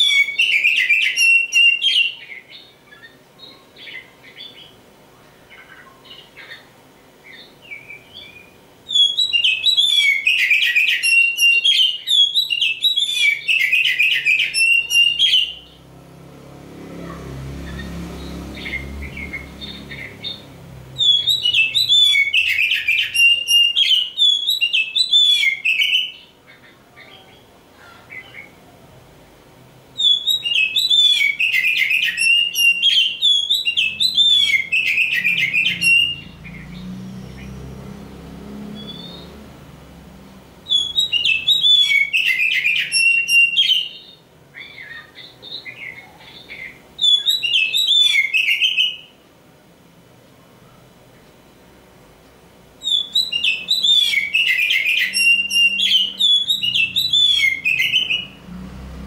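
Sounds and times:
bird singing whistled notes: 0.0s - 4.8s, 7.2s - 15.8s, 17.7s - 26.3s, 30.0s - 37.5s, 38.6s - 39.5s, 40.6s - 49.2s, 52.8s - 58.5s.

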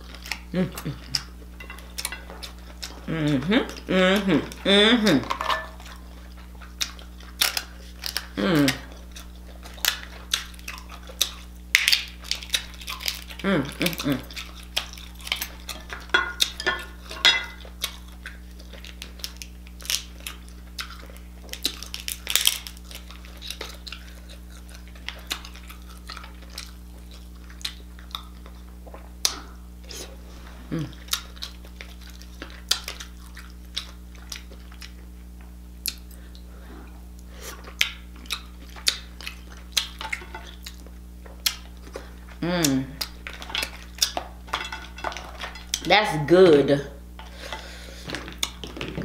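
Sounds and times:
wet chewing: 0.0s - 45.9s, 47.3s - 49.0s
crab shell cracking: 6.7s - 28.4s
lip smacking: 35.8s - 44.4s.

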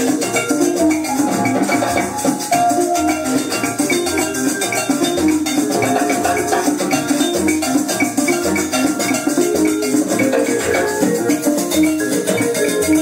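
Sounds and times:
instrumental music from record player: 0.0s - 13.0s.

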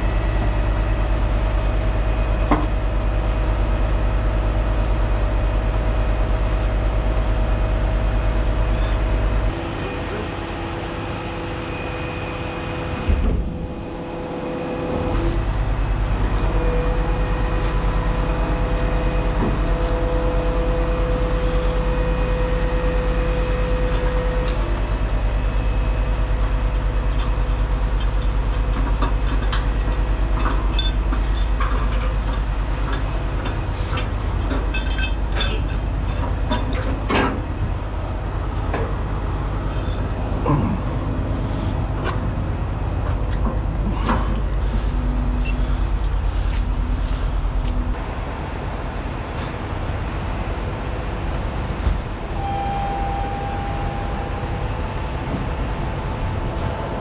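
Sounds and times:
diesel truck engine running: 0.0s - 52.6s
metal clanks and knocks: 26.4s - 46.7s.

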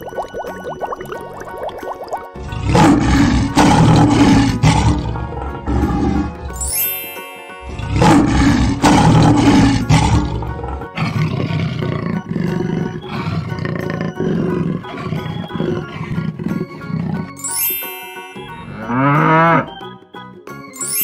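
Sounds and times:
rhythmic background music: 0.0s - 21.0s
lion roar: 2.4s - 6.6s, 7.7s - 17.4s.

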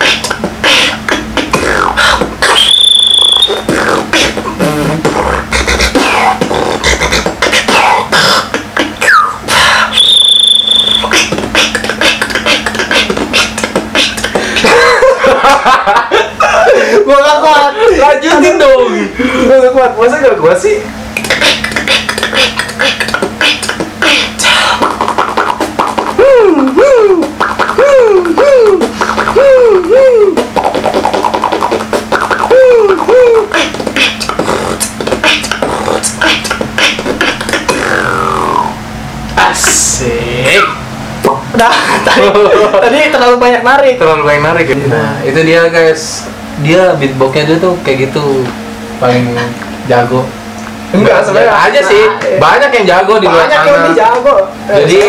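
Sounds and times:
person beatboxing: 0.0s - 14.8s, 21.1s - 38.8s, 39.4s - 41.5s
low steady hum: 0.0s - 55.0s
high whistled note: 2.5s - 3.6s, 10.0s - 11.1s.

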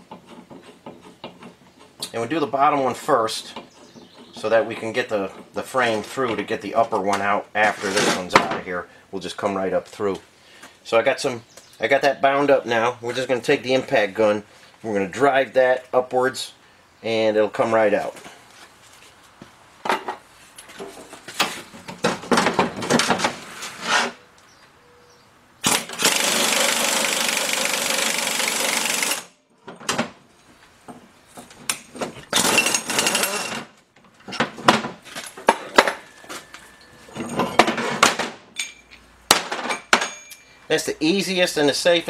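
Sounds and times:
impact gun bursts: 25.6s - 29.3s
metal clinks: 38.6s - 39.0s, 39.7s - 40.6s.

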